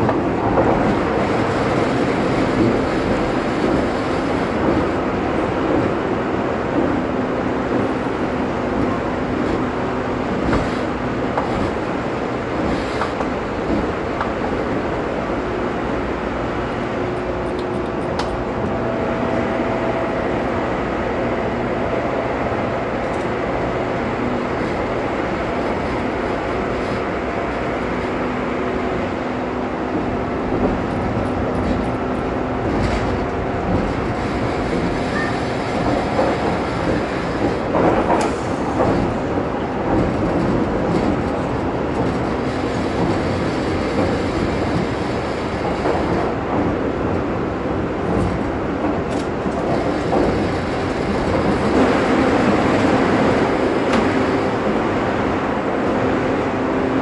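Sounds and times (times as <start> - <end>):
train running noise: 0.0 - 57.0
wheels clattering over rails: 28.9 - 56.4.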